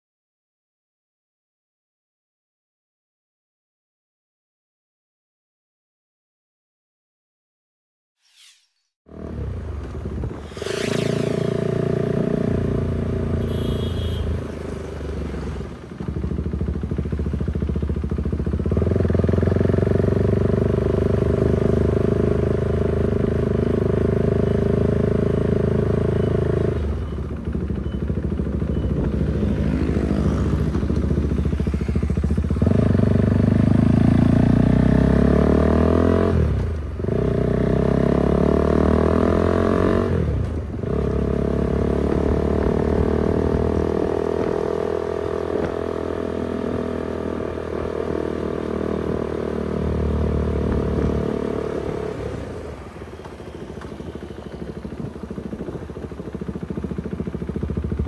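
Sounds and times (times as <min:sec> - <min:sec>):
motorcycle engine running: 0:15.8 - 0:35.9, 0:40.6 - 0:52.3, 0:53.0 - 0:58.0.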